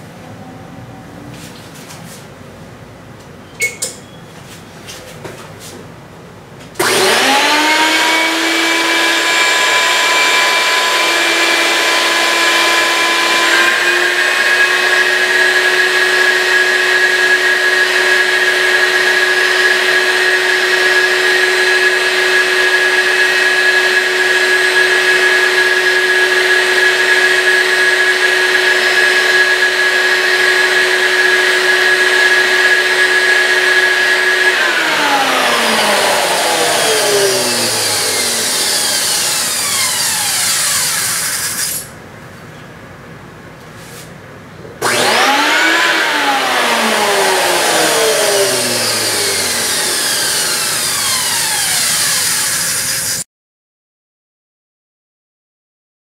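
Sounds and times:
shop vacuum whining: 6.7 - 42.0, 44.8 - 53.2.

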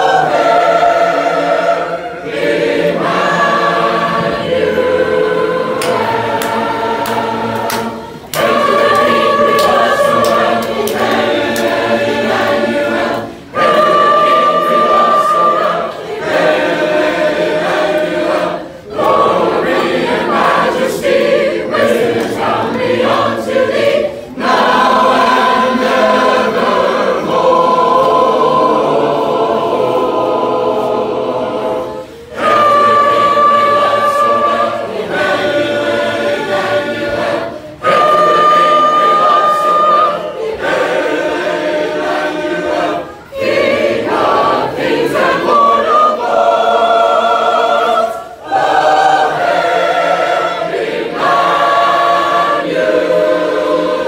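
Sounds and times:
congregation singing a hymn: 0.0 - 54.0.

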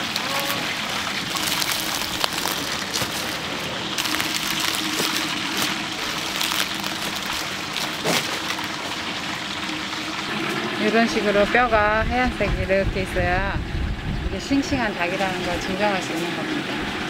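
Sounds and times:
chicken sizzling in hot oil: 0.0 - 12.2.

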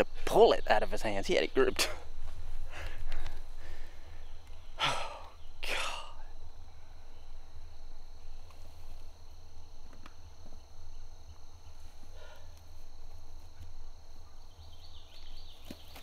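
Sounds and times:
rustles and clicks in grass: 0.0 - 4.7, 7.3 - 16.0
low rumble: 0.0 - 12.1
insect trilling: 0.0 - 16.0.

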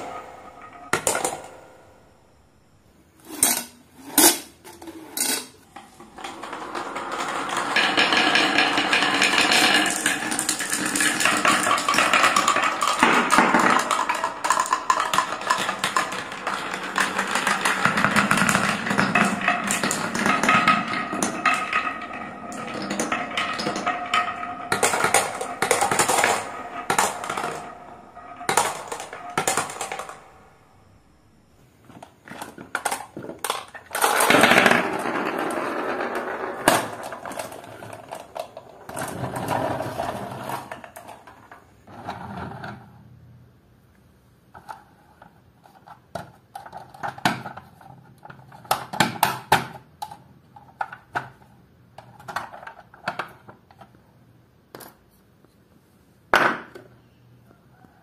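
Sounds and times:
marbles whirring in wooden funnel: 0.0 - 1.9, 5.6 - 30.9, 32.0 - 42.8
marbles tumbling out of toy truck: 0.0 - 2.0, 5.2 - 31.0, 31.8 - 42.8
marbles clattering down marble run: 0.0 - 2.1, 5.2 - 31.0, 32.0 - 42.4.

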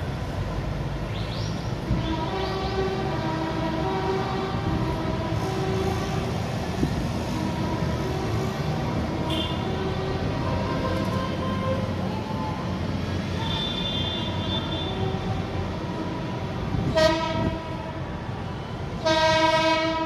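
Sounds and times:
tractor horns sounding: 9.2 - 9.8, 13.4 - 15.0, 16.9 - 17.6, 19.0 - 20.0.

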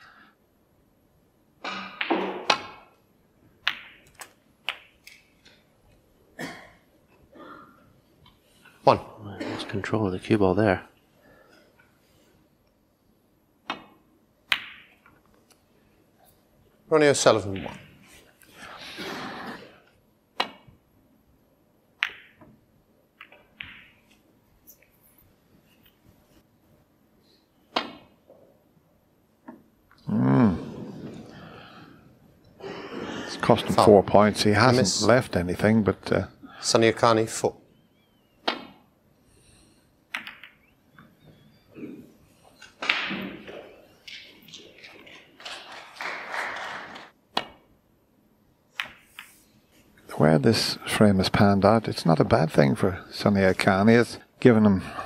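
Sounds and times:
snooker balls clicking: 1.6 - 3.0, 3.6 - 6.0, 20.4 - 20.8, 22.0 - 24.2, 40.1 - 41.2, 42.6 - 47.7, 48.7 - 49.4
snooker balls clicking together: 3.6 - 5.6, 20.4 - 20.8, 23.2 - 24.2, 40.1 - 41.1, 48.7 - 49.4.

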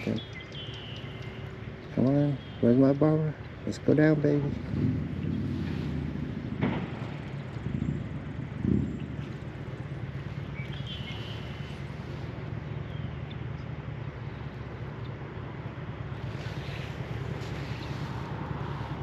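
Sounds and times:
bird chirp: 0.0 - 6.0, 7.2 - 18.8
distant engine drone: 0.0 - 19.0
dull bumps: 4.5 - 11.0.

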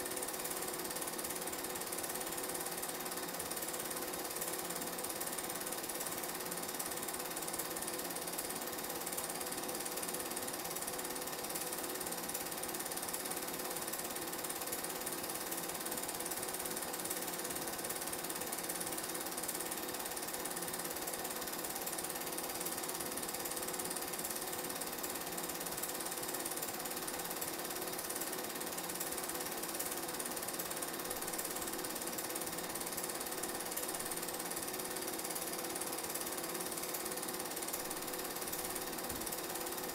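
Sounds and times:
film projector whirring and clattering: 0.0 - 39.9.

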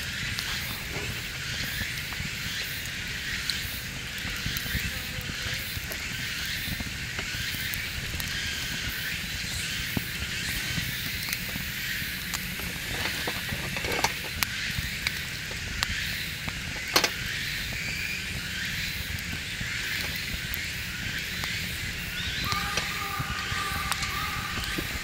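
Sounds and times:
campfire crackling: 0.0 - 25.0
fire sharp snaps: 0.0 - 25.0
low rumble: 20.4 - 25.0.

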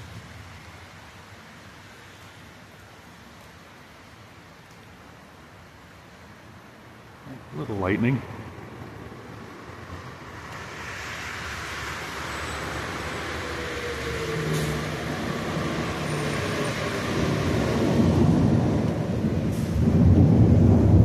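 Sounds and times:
tyres hissing on wet road: 0.0 - 21.0
large vehicle engine: 7.3 - 21.0.

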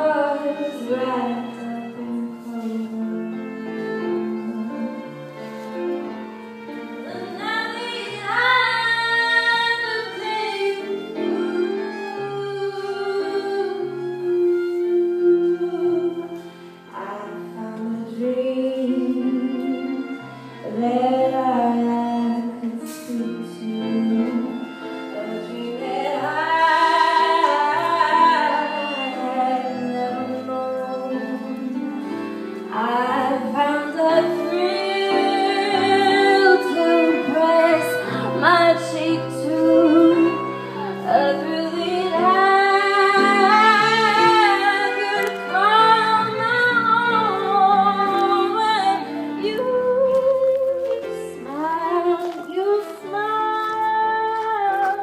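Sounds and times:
instrumental accompaniment: 0.0 - 55.0
woman singing with vibrato: 7.0 - 16.4, 17.0 - 32.0, 32.7 - 55.0.

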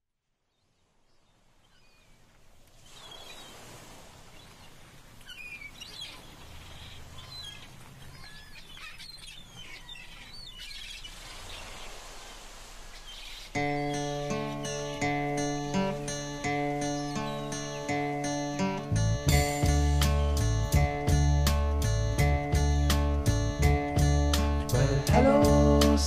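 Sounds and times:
outdoor background hiss: 0.1 - 26.0
small birds chirping: 0.5 - 26.0.

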